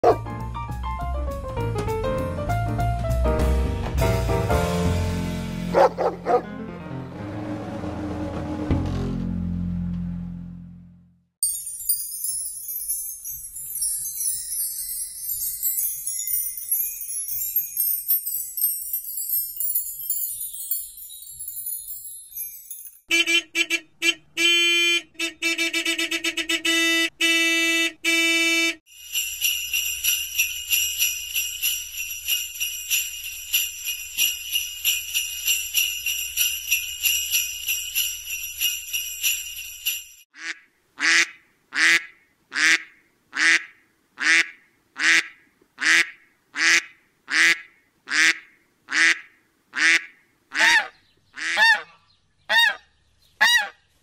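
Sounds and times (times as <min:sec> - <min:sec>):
sleigh bells jingling: 0:11.4 - 0:23.1, 0:28.9 - 0:40.3
wind chimes tinkling: 0:11.4 - 0:23.1, 0:28.9 - 0:40.3
duck quacking: 0:40.4 - 0:52.8.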